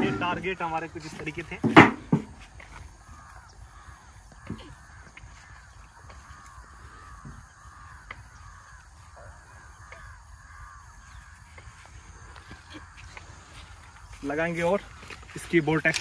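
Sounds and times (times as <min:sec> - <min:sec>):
birds calling: 0:00.0 - 0:16.0.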